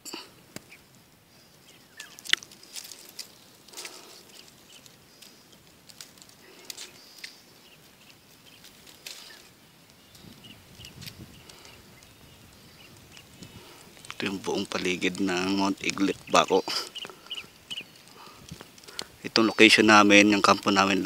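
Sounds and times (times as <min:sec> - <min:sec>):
rustles and clicks: 0:00.0 - 0:21.0.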